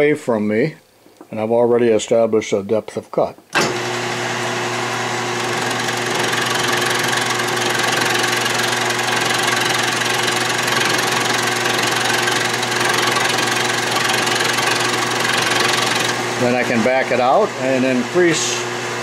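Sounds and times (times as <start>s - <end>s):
end mill cutting metal: 3.6s - 18.5s
lathe running: 3.6s - 19.0s.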